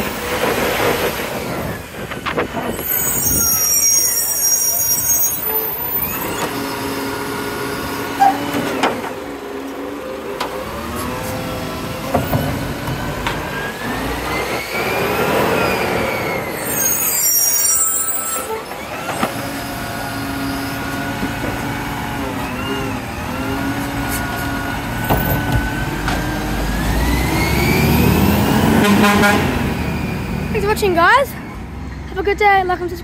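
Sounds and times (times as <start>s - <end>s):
diesel truck engine running: 18.7s - 31.9s.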